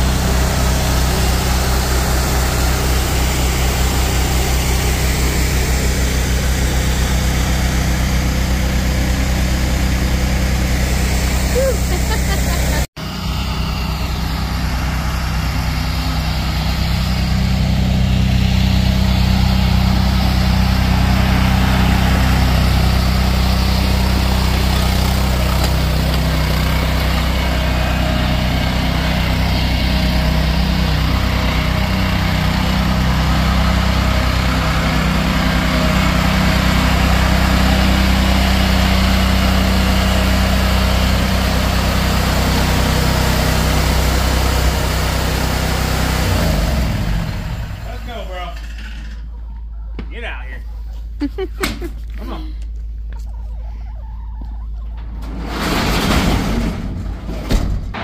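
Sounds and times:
small engine humming: 0.0 - 49.0.

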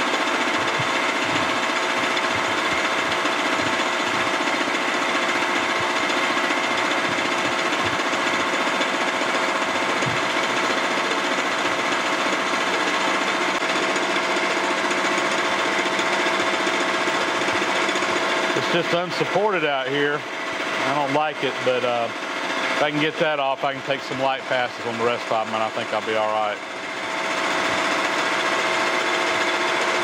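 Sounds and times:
milling machine cutting steel: 0.0 - 30.0.

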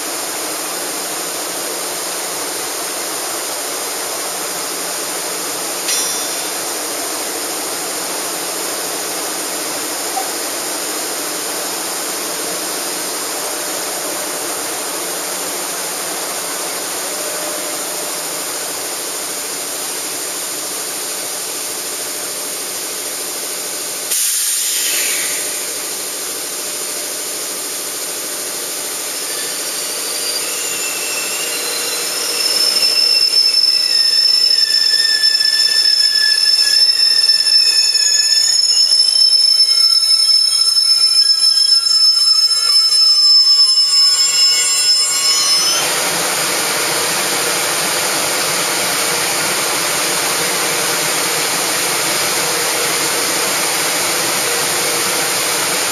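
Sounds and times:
standing locomotive steady noise: 0.0 - 55.9
train arriving: 0.0 - 55.9
high wheel and brake squeals: 5.8 - 6.9, 29.0 - 46.1.

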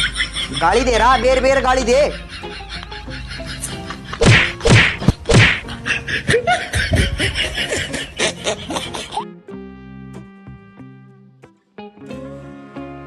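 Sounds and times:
heavy whacks with swoosh: 4.2 - 5.6.

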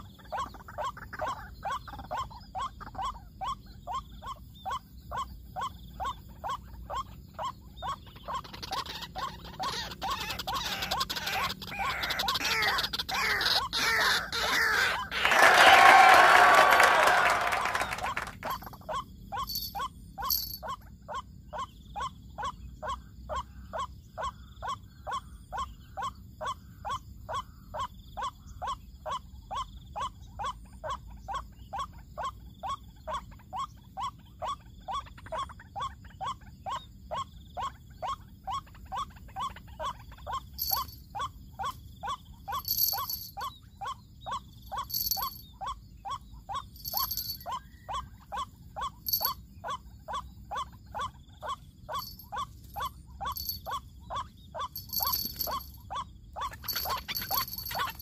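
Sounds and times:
waterhen calling: 8.3 - 20.8, 39.0 - 41.8, 44.7 - 58.0
high chirps: 15.0 - 20.8, 39.8 - 58.0.

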